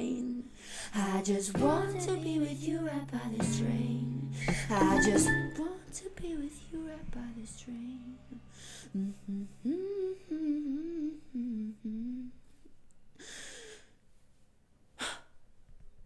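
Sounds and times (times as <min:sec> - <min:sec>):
person humming: 0:08.1 - 0:12.4
breathy sigh: 0:13.2 - 0:14.0.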